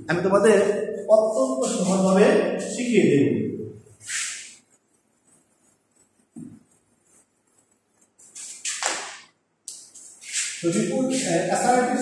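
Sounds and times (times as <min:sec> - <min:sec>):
duster swishing on whiteboard: 0:01.2 - 0:02.8, 0:04.0 - 0:12.0.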